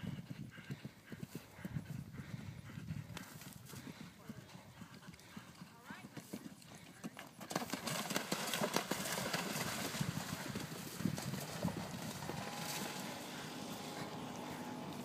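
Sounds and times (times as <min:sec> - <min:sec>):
horse hooves splashing through water: 0:03.2 - 0:15.0.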